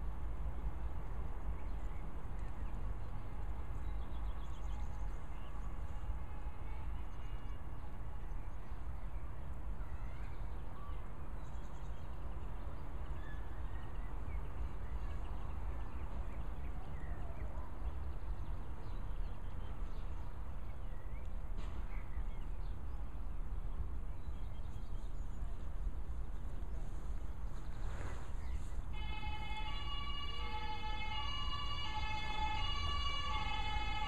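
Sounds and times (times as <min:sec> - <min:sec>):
songbirds chirping: 0:00.0 - 0:34.0.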